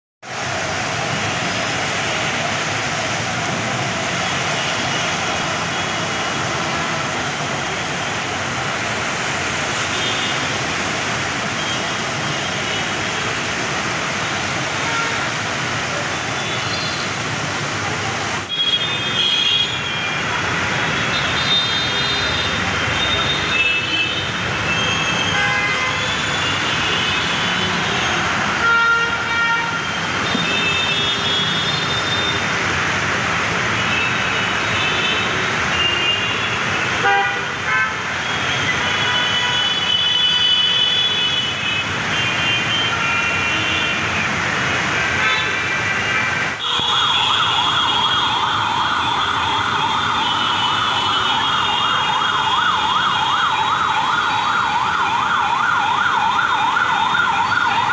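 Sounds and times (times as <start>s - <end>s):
water hissing and splashing: 0.3s - 52.1s
vehicle horns honking: 21.3s - 32.4s, 33.9s - 44.0s, 46.6s - 47.5s
siren wailing: 46.6s - 57.9s.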